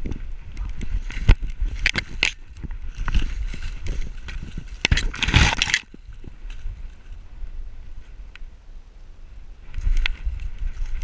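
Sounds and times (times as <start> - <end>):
cornstalks rustling and scraping: 0.0 - 8.5, 9.6 - 11.0
sharp crackles: 0.0 - 8.6, 9.6 - 11.0
snow crunching: 0.2 - 8.2.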